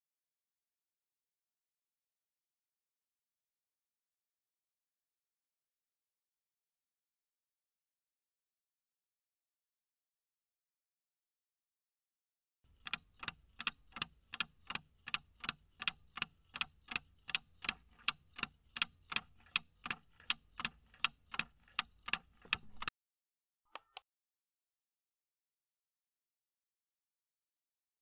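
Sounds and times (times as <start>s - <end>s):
clock ticking: 12.7s - 22.9s
short clicks: 23.7s - 24.0s.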